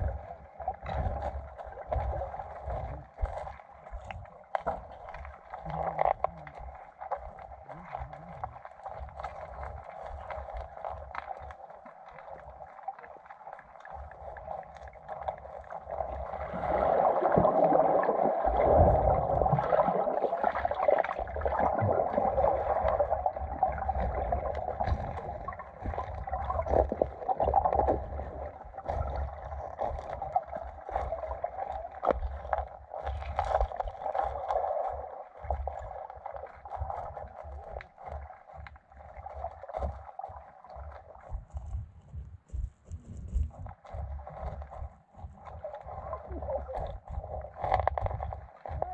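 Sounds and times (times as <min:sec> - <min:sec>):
muffled underwater sloshing: 0:00.0 - 0:48.9.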